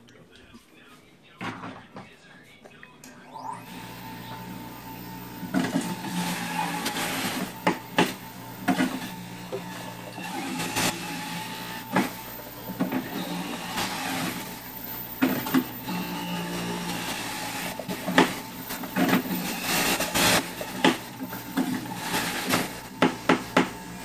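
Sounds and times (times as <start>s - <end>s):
juicer motor running: 3.1s - 24.0s
knocks and thuds of fruit grinding: 20.5s - 23.8s.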